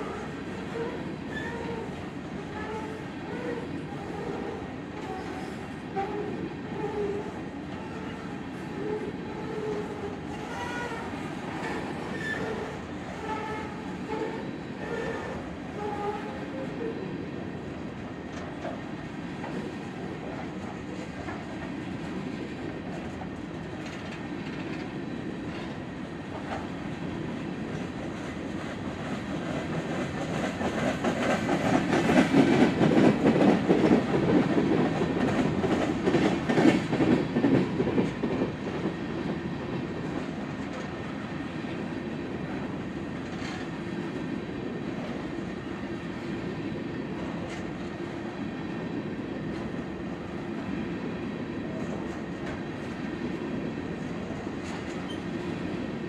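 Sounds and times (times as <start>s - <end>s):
train wheels clattering over rail joints: 27.7s - 39.3s.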